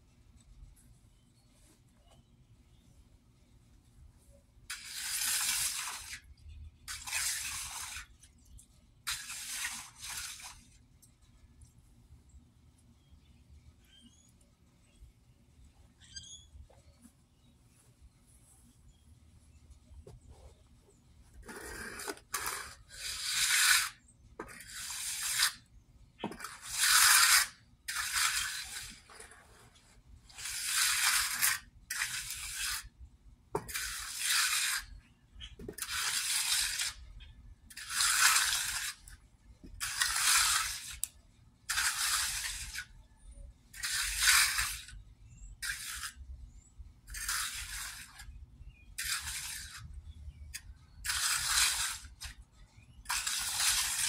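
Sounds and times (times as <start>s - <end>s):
trowel scraping wet concrete: 4.7s - 8.3s, 9.1s - 10.8s, 21.4s - 33.0s, 33.6s - 43.0s, 43.7s - 46.3s, 47.1s - 54.0s.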